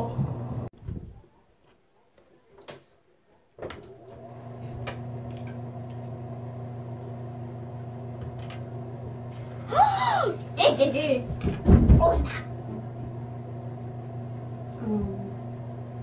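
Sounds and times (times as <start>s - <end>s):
exhaust fan humming: 0.0s - 0.7s, 3.9s - 16.0s.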